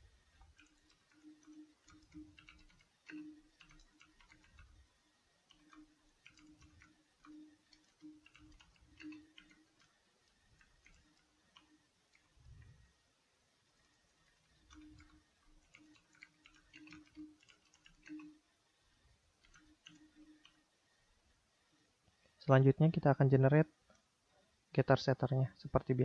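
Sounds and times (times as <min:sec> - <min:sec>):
computer keyboard typing: 0:00.4 - 0:04.8, 0:05.5 - 0:12.7, 0:14.2 - 0:18.4, 0:19.4 - 0:20.6.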